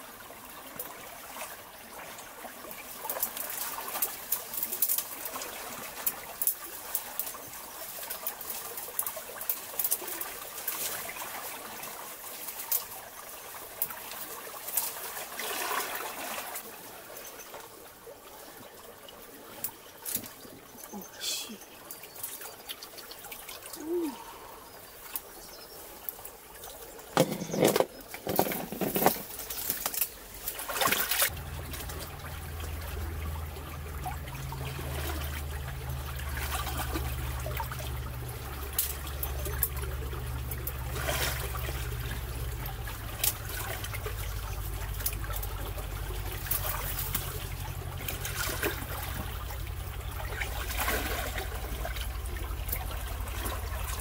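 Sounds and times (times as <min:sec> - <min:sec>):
stream water splashing: 0:00.0 - 0:54.0
steady low rumble: 0:31.3 - 0:54.0.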